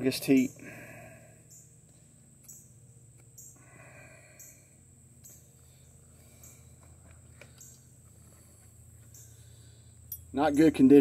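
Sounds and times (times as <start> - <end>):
high insect drone: 0.0 - 11.0
low steady hum: 0.0 - 11.0
high-pitched insect chirps: 1.3 - 6.7, 7.5 - 8.0, 9.0 - 11.0.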